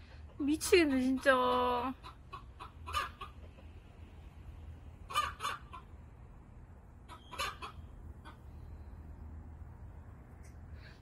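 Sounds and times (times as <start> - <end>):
chickens clucking: 0.0 - 4.3, 4.9 - 6.1, 7.0 - 8.6
faint low hum: 3.4 - 11.0.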